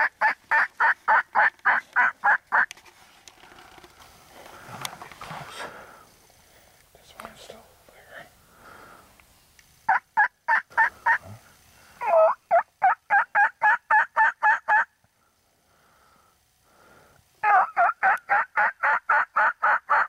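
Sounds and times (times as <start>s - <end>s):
turkey yelping: 0.0s - 2.7s, 9.9s - 11.2s, 12.0s - 15.0s, 17.4s - 20.0s.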